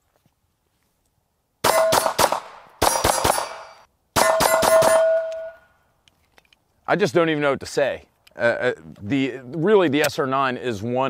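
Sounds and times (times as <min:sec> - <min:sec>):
pistol shots: 0:01.6 - 0:05.6
metallic ring: 0:02.9 - 0:05.7.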